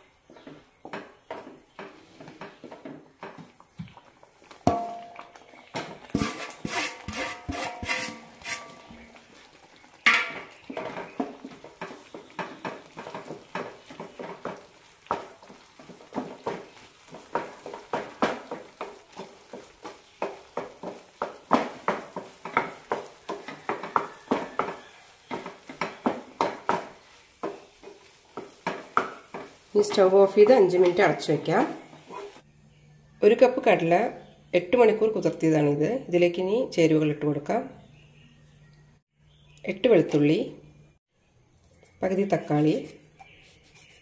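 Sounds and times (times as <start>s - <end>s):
wooden spatula scraping dough in pan: 0.3s - 4.6s, 5.5s - 32.4s, 41.6s - 44.0s.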